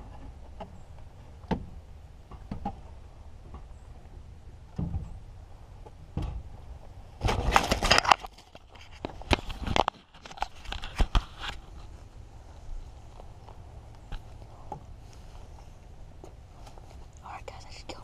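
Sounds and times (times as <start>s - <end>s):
fabric rustling against microphone: 7.1s - 17.2s.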